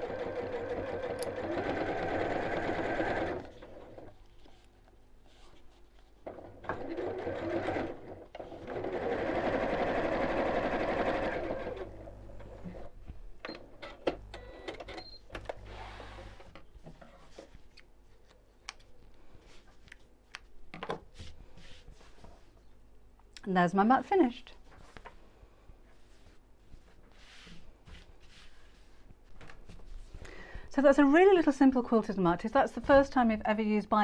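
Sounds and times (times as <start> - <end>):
sewing machine stitching: 0.0 - 4.1, 6.3 - 12.9.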